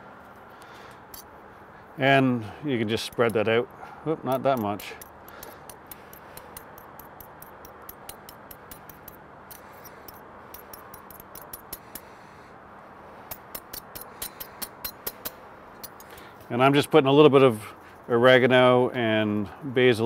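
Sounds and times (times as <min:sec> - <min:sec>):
steady low hum: 0:00.0 - 0:20.0
fork and spoon clicking and scraping: 0:04.3 - 0:12.1, 0:13.3 - 0:16.2.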